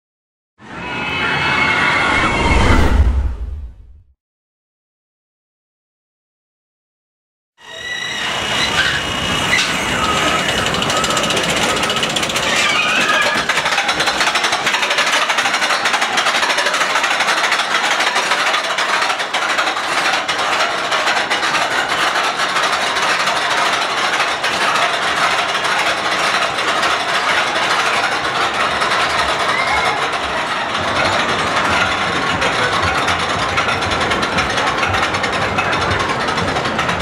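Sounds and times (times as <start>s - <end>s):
roller coaster chain lift clattering: 7.7s - 37.0s.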